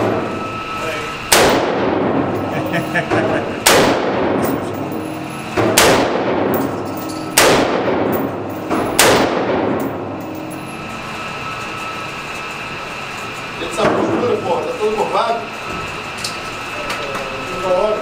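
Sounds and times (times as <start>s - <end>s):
steady hum: 0.0s - 18.0s
rifle shots echoing indoors: 1.3s - 2.3s, 3.6s - 4.9s, 5.6s - 10.4s.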